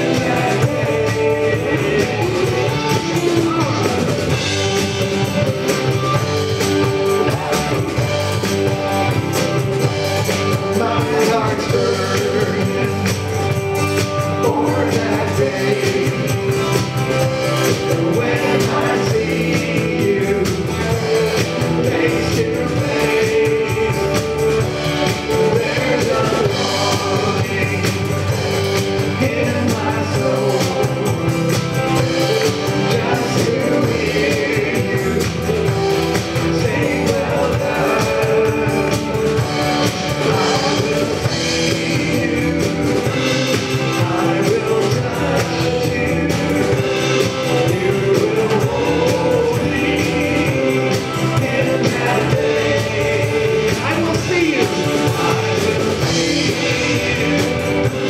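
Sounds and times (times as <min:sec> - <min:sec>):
singers singing together: 0:00.0 - 0:08.1, 0:10.3 - 0:58.0
drum kit: 0:00.0 - 0:58.0
guitar: 0:00.0 - 0:58.0
worship band playing: 0:00.0 - 0:58.0.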